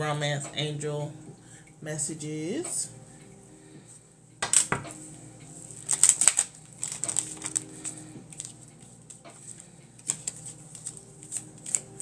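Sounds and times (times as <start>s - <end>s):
cards being shuffled: 5.8s - 12.0s.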